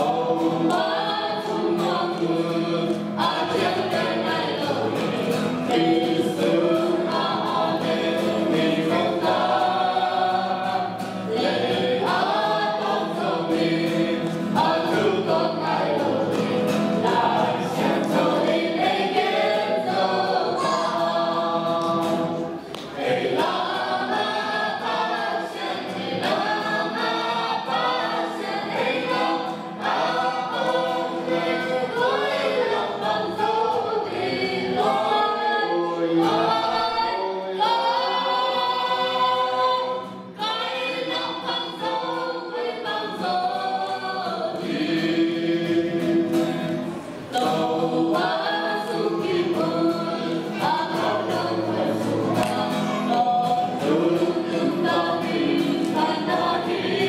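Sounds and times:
group singing a hymn: 0:00.0 - 0:57.0.

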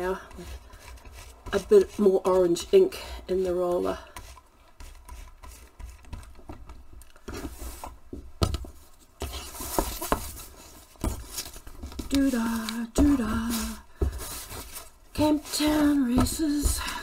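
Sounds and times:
ink roller rubbing over fabric: 0:00.0 - 0:06.3, 0:12.1 - 0:17.0
fabric scuffs and rustles: 0:08.7 - 0:17.0
woman singing: 0:12.0 - 0:13.9, 0:15.2 - 0:17.0.

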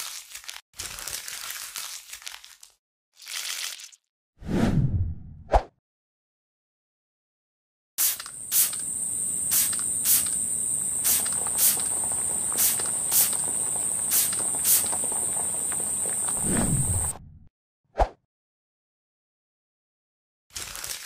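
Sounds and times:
spray-bottle spritzes: 0:08.0 - 0:10.4, 0:11.0 - 0:11.8, 0:12.6 - 0:13.4, 0:14.1 - 0:14.9
high-pitched insect-like trill: 0:08.0 - 0:15.1.

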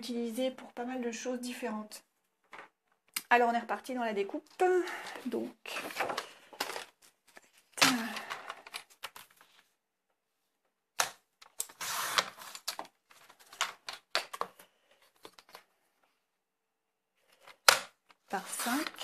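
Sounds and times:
paper sliding rustle: 0:11.6 - 0:13.6.

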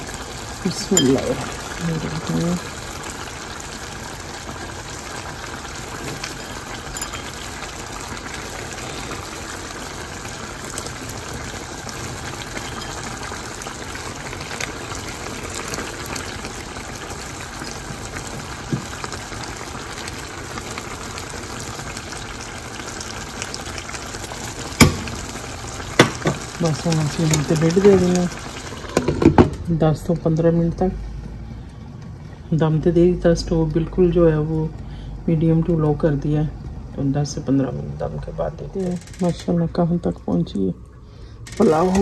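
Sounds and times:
rice and broth simmering: 0:00.0 - 0:30.0, 0:38.8 - 0:42.0.

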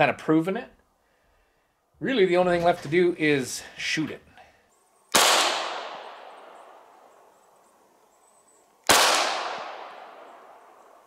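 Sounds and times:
gunshot with echo: 0:05.2 - 0:06.6, 0:08.9 - 0:10.5.

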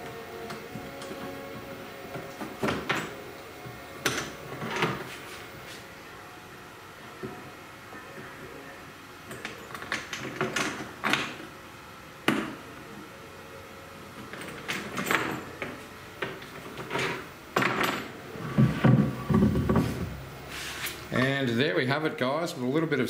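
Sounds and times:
heavy thumps: 0:18.5 - 0:20.3
wood knocking on machine: 0:18.6 - 0:20.2.

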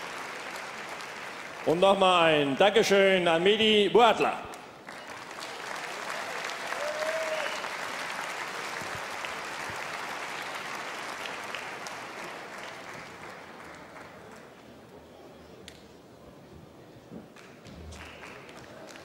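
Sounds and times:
crowd applauding: 0:00.0 - 0:02.5, 0:04.6 - 0:14.7, 0:17.3 - 0:19.0.

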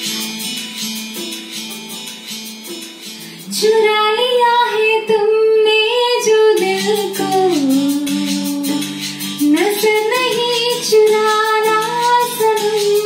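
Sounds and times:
guitar strumming backing track: 0:00.0 - 0:13.0
woman singing: 0:03.4 - 0:13.0.

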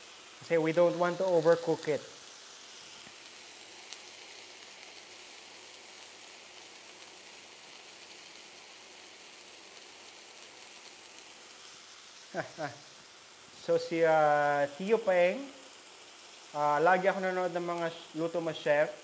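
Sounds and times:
fish sizzling in a frying pan: 0:00.0 - 0:19.0.

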